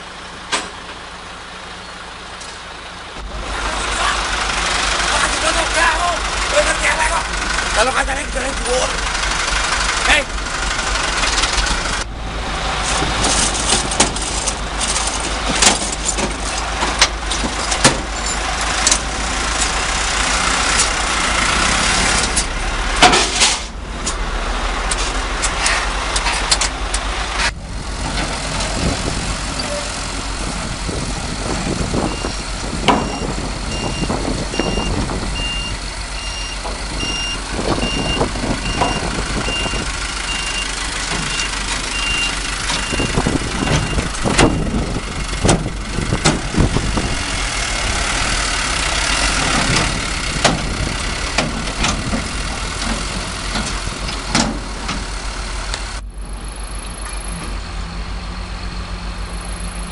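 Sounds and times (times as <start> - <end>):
dump truck engine: 0.0 - 59.9
truck body clattering and knocking: 12.9 - 19.8, 22.2 - 24.2, 30.5 - 35.3, 36.6 - 55.2
truck reversing alarm beeps: 31.2 - 45.3, 56.3 - 59.9.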